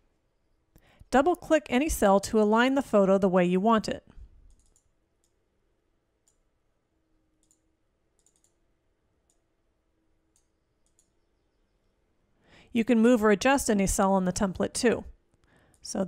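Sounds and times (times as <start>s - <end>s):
computer mouse clicks: 4.5s - 5.4s, 6.2s - 6.5s, 7.4s - 8.6s, 9.2s - 9.5s, 10.3s - 11.2s.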